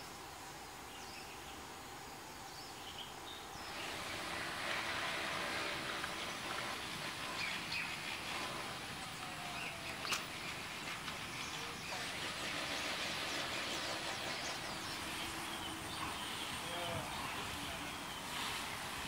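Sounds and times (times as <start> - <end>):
steady background hum: 0.0 - 19.0
bird chirps: 6.1 - 18.6.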